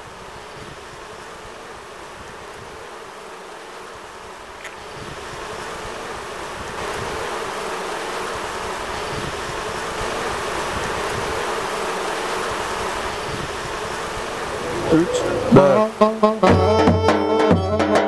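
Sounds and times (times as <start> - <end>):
bees buzzing: 5.6 - 18.0.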